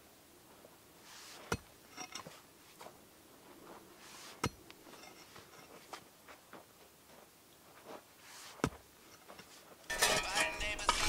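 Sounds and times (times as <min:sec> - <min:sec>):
pickaxe striking dry dirt: 0:01.4 - 0:02.4, 0:04.3 - 0:06.0, 0:08.5 - 0:08.9.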